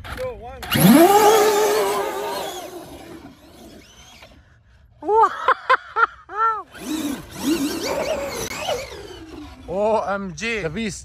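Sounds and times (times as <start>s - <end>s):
electric motor whine: 0.7s - 4.4s, 6.7s - 9.8s
short rising and falling tones: 0.7s - 4.4s.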